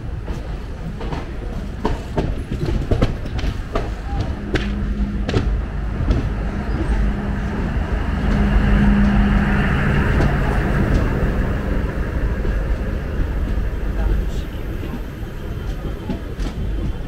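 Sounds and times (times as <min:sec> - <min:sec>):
train motor hum: 0:00.0 - 0:17.0
train wheels rumbling on rail: 0:00.0 - 0:17.0.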